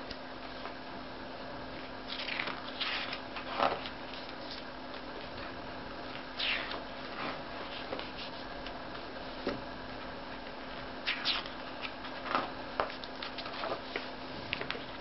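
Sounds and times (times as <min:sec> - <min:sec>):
faint hum: 0:00.0 - 0:15.0
book pages turning: 0:02.1 - 0:05.1, 0:11.1 - 0:15.0.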